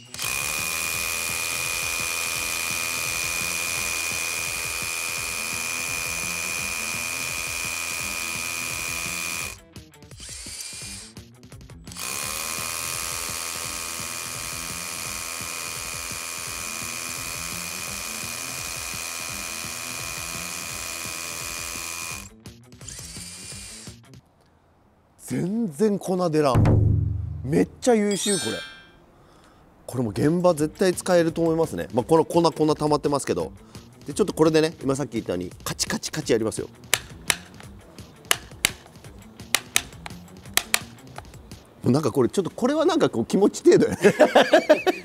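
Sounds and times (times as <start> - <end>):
hammer drill into concrete: 0.0 - 11.2, 11.9 - 24.0, 36.9 - 37.7, 38.3 - 38.9, 39.5 - 41.3.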